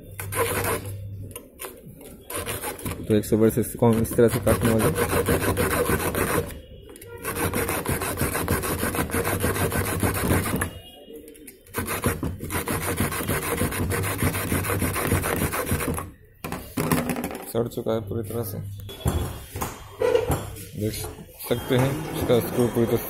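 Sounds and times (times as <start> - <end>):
hacksaw cutting steel: 4.2 - 6.5, 7.2 - 10.6.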